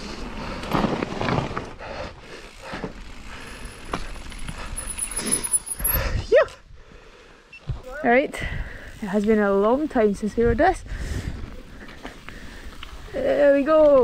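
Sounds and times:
bike rattling: 0.0s - 6.2s, 8.6s - 14.0s.

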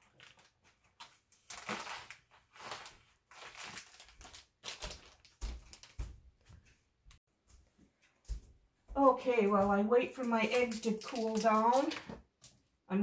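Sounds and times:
plastic bag crinkling: 0.0s - 6.1s, 10.4s - 12.2s.

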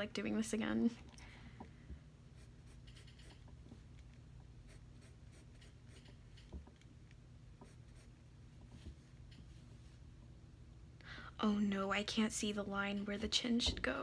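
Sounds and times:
pencil scratching on paper: 4.7s - 6.1s.

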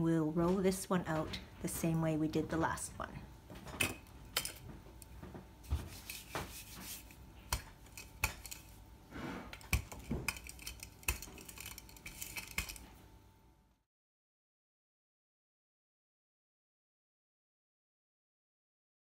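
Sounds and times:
rolling pin on wooden board: 5.3s - 12.8s.

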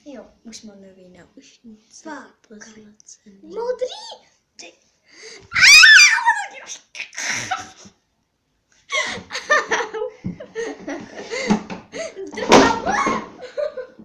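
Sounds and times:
girl shrieking with laughter: 5.5s - 6.6s, 12.8s - 13.6s
girl giggling and laughing: 8.9s - 14.0s.

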